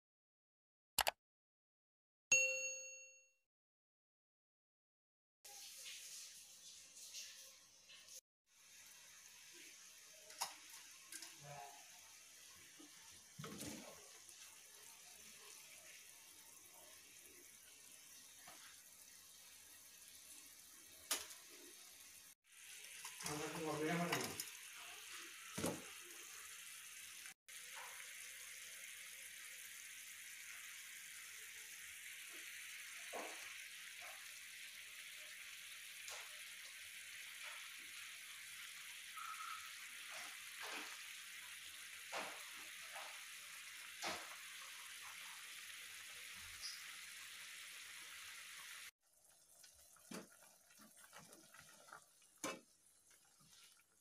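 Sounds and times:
water boiling with pops: 8.6 - 20.2, 20.8 - 24.9, 27.5 - 54.0.

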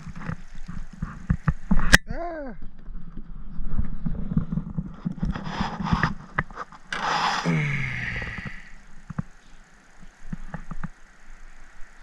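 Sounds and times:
fish handling knocks and scrapes: 2.9 - 7.4.

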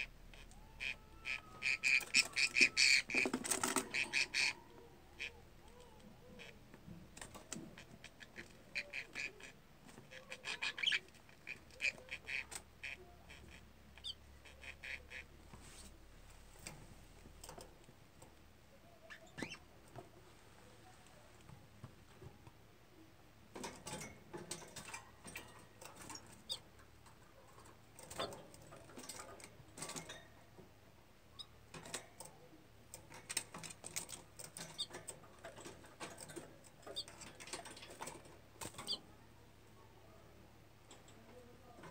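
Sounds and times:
budgerigar chirps: 0.8 - 3.2, 3.9 - 4.6, 8.1 - 15.3
beak and claws clicking on cage: 31.7 - 39.1.

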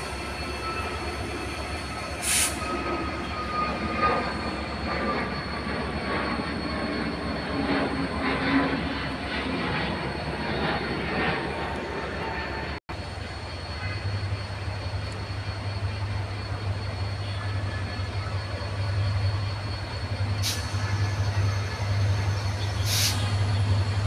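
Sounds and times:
jet airliner passing overhead: 0.0 - 24.0
short hiss: 2.2 - 2.6, 20.4 - 20.8, 22.8 - 23.3.

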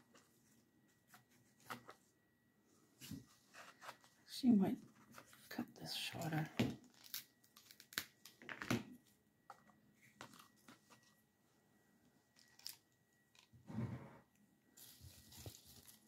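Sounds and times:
crunchy rustle: 14.7 - 16.0.

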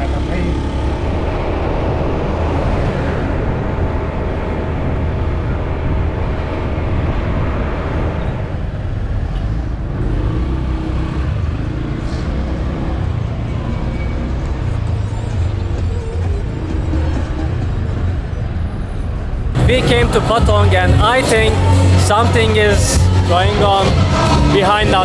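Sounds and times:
motorcycle engine running: 0.0 - 2.6
road and wind noise: 0.0 - 25.0.

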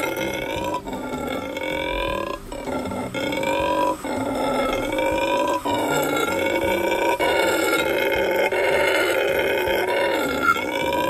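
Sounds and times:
howler monkeys howling: 0.0 - 11.0.

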